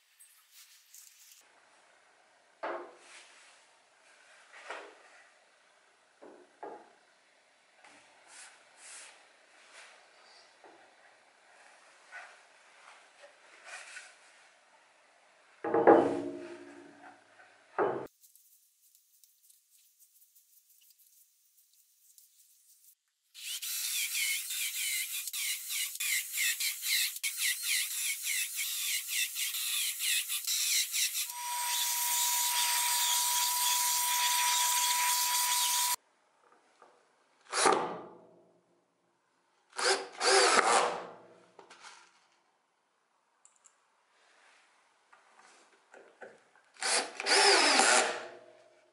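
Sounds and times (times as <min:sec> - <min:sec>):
board knocking on metal table: 0:15.7 - 0:16.4
faint handling rubs: 0:18.1 - 0:23.0
cordless drill driving screws: 0:23.4 - 0:36.0, 0:39.8 - 0:40.8, 0:46.8 - 0:48.2.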